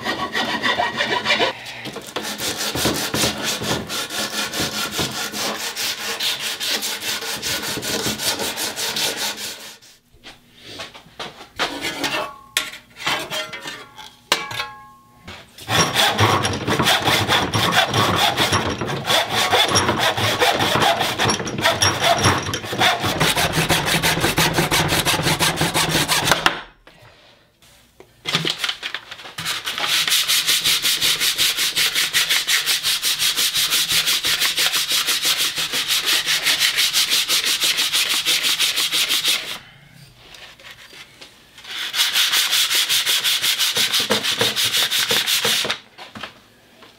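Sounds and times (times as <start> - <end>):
sandpaper strokes on wood: 0.0 - 1.6, 2.2 - 10.0, 29.5 - 39.6, 41.7 - 45.6
hand tool rasping wood: 0.0 - 9.8, 15.6 - 26.4, 29.8 - 39.6, 41.8 - 45.7.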